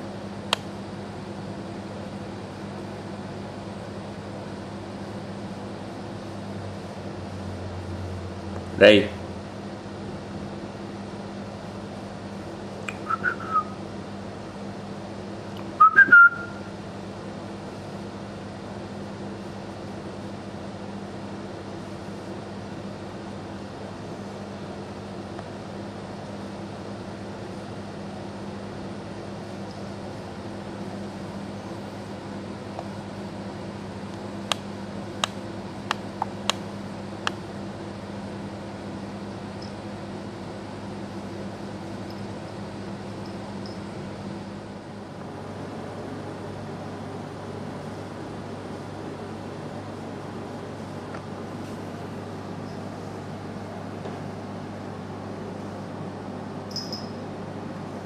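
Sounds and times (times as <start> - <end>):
steady low hum: 0.0 - 58.0
person whistling short notes: 12.9 - 13.8, 15.8 - 16.7.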